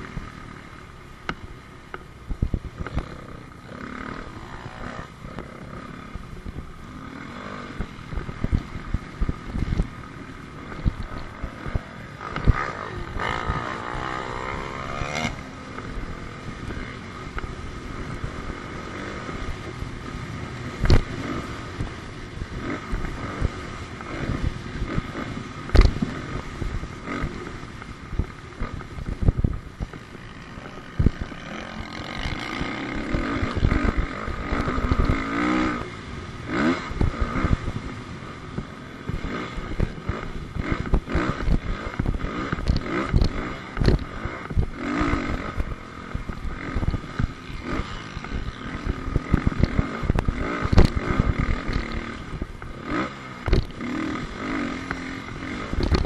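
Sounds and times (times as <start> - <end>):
dirt bike engine revving: 0.0 - 56.0
sharp thumps: 25.7 - 26.2, 53.4 - 53.9, 55.7 - 56.0.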